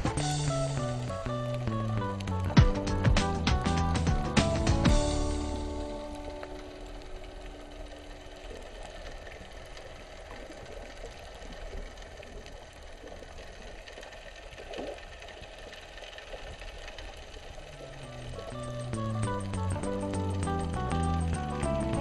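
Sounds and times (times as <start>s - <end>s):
background music notes: 0.0s - 8.3s, 17.8s - 22.0s
fine crackling clicks: 0.0s - 22.0s
muffled underwater rumble: 0.0s - 22.0s.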